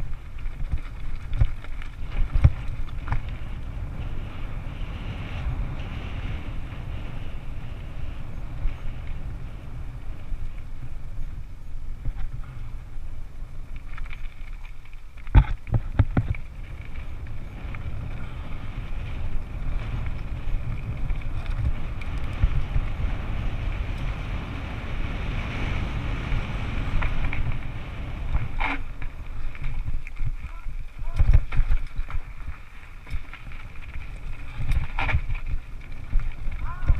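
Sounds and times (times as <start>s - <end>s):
bike knocking on rough ground: 0.0s - 4.0s, 13.6s - 24.6s, 25.3s - 36.9s
mountain bike rumbling and rattling: 0.0s - 36.9s
wind buffeting microphone: 0.0s - 36.9s.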